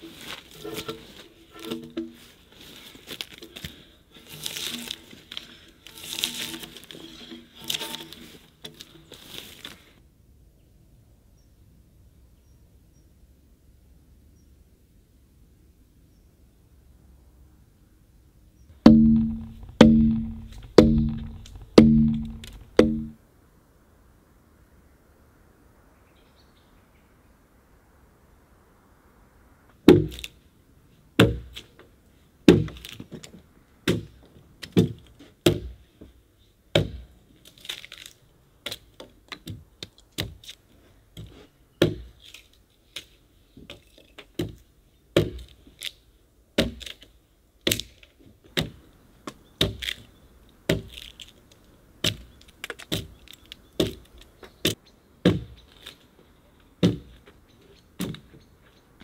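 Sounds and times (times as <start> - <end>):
hand tool chopping into log: 18.8 - 23.2, 29.9 - 30.3, 32.5 - 32.9, 45.2 - 45.6.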